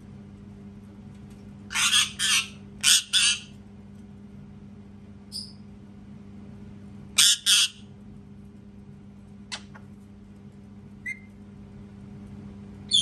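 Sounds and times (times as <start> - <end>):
steady low hum: 0.0 - 13.0
parakeet shrieking: 1.7 - 3.5, 7.2 - 7.8
parakeet squawk and chirp: 1.7 - 3.6, 7.2 - 7.9.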